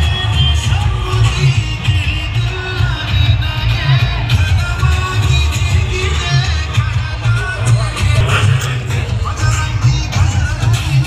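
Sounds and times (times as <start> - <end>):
music with pulsing bass: 0.0 - 11.0.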